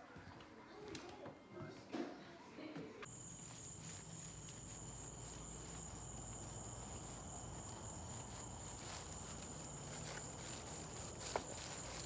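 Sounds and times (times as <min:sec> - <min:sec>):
faint light footsteps: 0:03.0 - 0:12.0
night insects chirping: 0:03.1 - 0:12.0.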